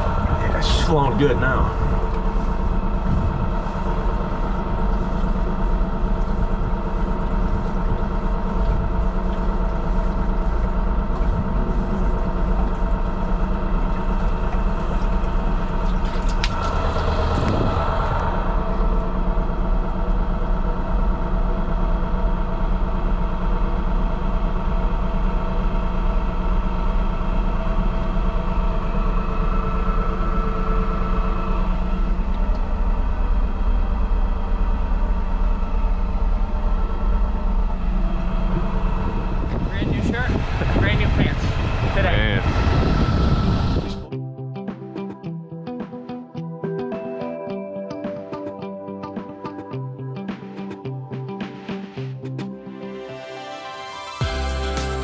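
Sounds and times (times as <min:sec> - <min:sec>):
engine running steadily: 0:00.0 - 0:44.2, 0:54.2 - 0:55.0.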